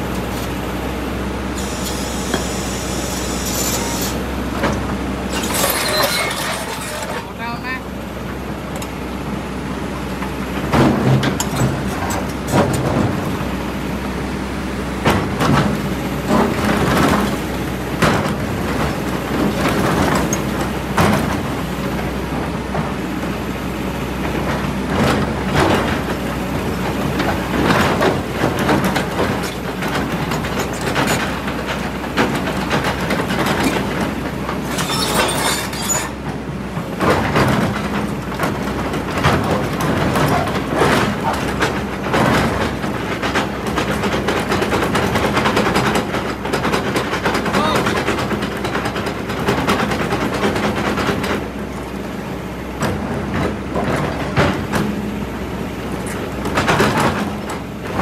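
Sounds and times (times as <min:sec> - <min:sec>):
excavator diesel engine running: 0:00.0 - 0:58.0
steel bucket scraping rocks: 0:05.3 - 0:07.6, 0:34.6 - 0:36.2.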